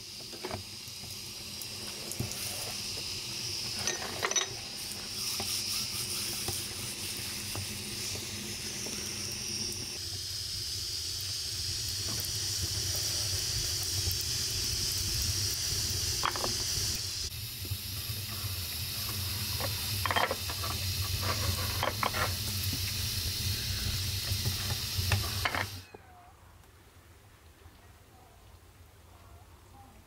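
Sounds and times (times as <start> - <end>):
food sizzling: 0.0 - 25.9.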